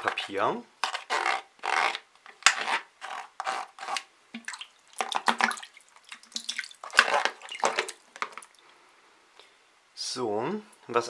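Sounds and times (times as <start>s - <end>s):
wet rubbing of paper label: 0.0s - 4.1s.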